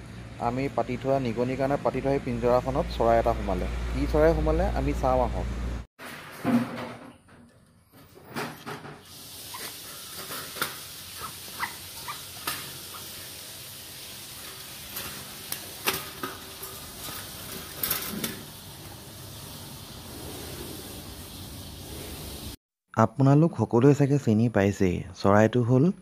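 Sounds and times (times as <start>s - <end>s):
steady hiss: 9.1s - 22.6s.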